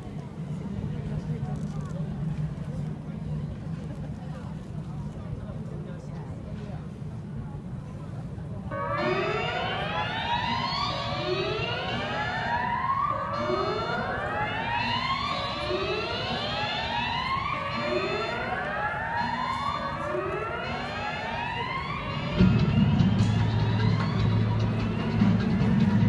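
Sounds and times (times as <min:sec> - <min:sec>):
siren-like rising whoop: 0:08.7 - 0:26.0.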